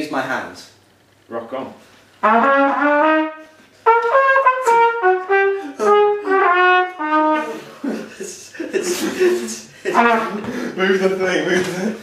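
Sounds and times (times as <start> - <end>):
trumpet playing a melody: 2.2 - 7.7, 9.9 - 10.4.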